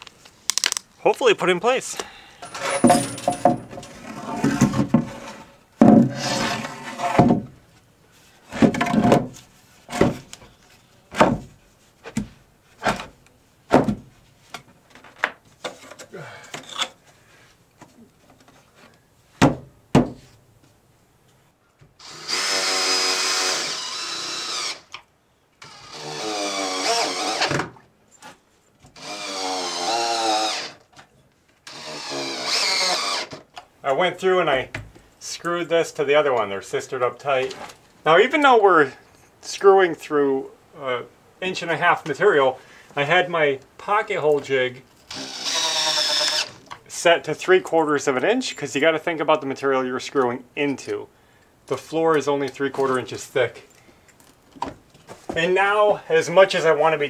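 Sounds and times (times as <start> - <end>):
knocks and thumps of lumber: 2.6 - 5.2, 5.8 - 6.2, 7.0 - 7.6, 8.5 - 10.3, 11.1 - 15.8, 19.4 - 20.3
cordless drill driving screws: 22.0 - 25.0, 25.6 - 27.6, 29.0 - 30.8, 31.6 - 33.4, 45.1 - 46.6.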